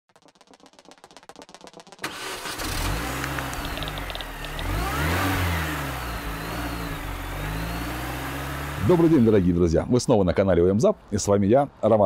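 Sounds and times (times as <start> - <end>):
car engine revving: 2.0 - 9.7.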